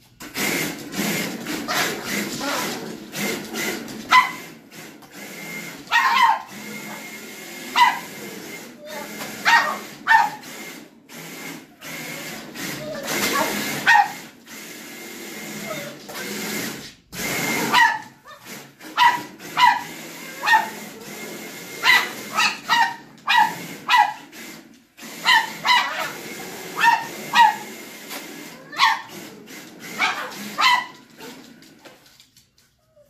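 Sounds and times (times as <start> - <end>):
toy car electric motor whirring: 0.2 - 31.4
dog barking: 4.1 - 4.5, 5.9 - 8.2, 8.9 - 10.4, 12.9 - 14.3, 17.6 - 20.9, 21.8 - 24.3, 25.2 - 27.8, 28.6 - 29.2, 29.9 - 31.4.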